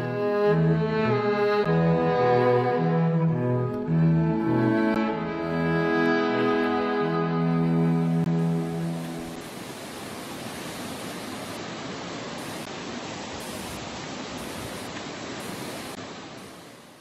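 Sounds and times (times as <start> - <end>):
creek water rushing over rocks: 6.2 - 17.0.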